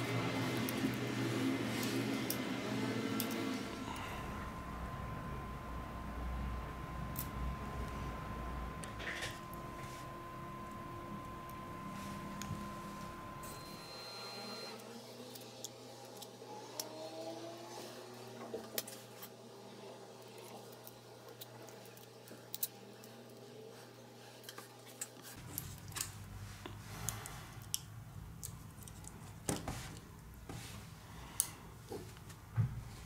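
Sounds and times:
low steady hum: 0.0s - 15.8s.

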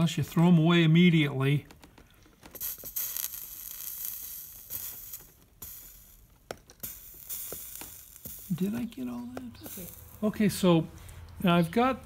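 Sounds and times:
flux sizzling and crackling: 2.5s - 10.8s.

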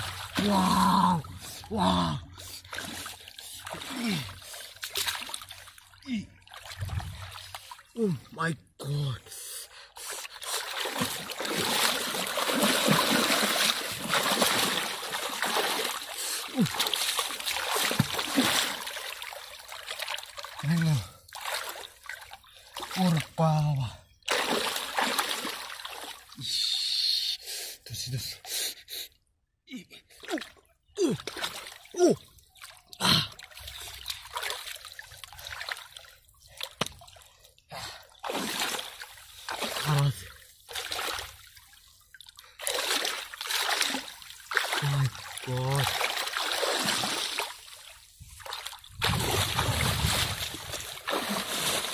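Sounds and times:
hands splashing in muddy water: 2.6s - 7.9s, 10.2s - 23.3s, 24.3s - 26.3s, 38.2s - 40.1s, 42.2s - 51.9s
water gurgling: 10.5s - 21.1s.

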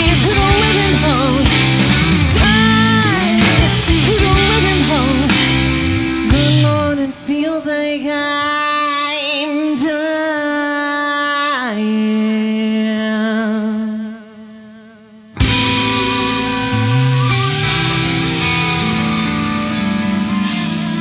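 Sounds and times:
live rock band: 0.0s - 10.1s, 15.4s - 21.0s
female singer: 0.0s - 15.8s.

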